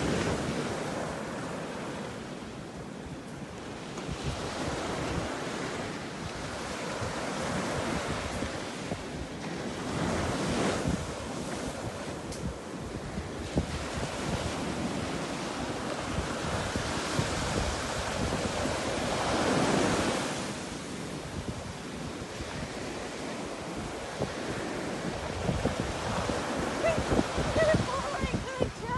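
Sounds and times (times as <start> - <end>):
wind blowing across microphone: 0.0 - 28.9.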